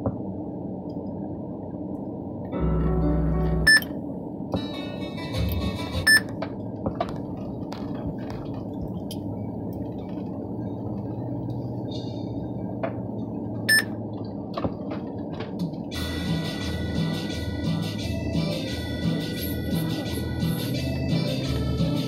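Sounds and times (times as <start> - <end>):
car cabin road and engine noise: 1.9 - 16.2
short high beep: 3.6 - 3.9, 6.0 - 6.2, 13.7 - 13.9.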